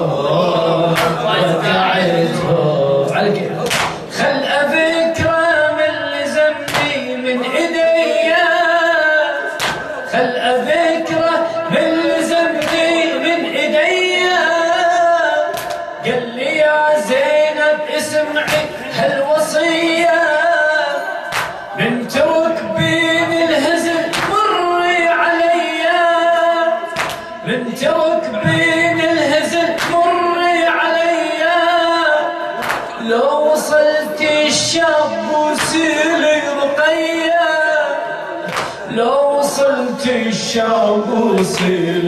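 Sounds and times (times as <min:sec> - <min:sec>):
men singing a lament: 0:00.0 - 0:42.0
hands slapping chests: 0:03.6 - 0:04.0, 0:09.6 - 0:09.9, 0:12.6 - 0:12.9, 0:15.5 - 0:15.8, 0:21.3 - 0:21.6, 0:24.1 - 0:24.4, 0:27.0 - 0:27.3, 0:32.6 - 0:32.9, 0:38.4 - 0:38.8.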